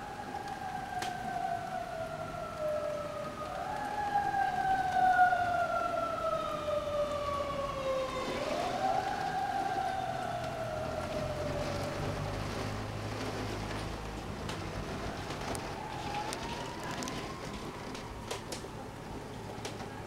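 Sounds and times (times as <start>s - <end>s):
emergency siren wailing: 0.0s - 20.0s
rain hiss: 0.0s - 20.0s.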